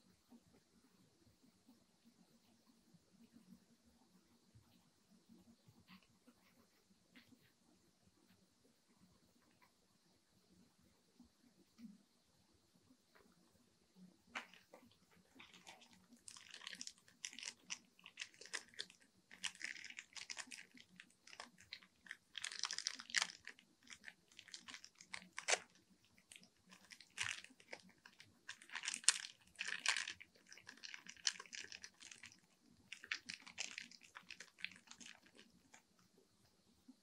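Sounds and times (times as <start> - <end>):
plastic wrapping crinkling: 14.4 - 35.8.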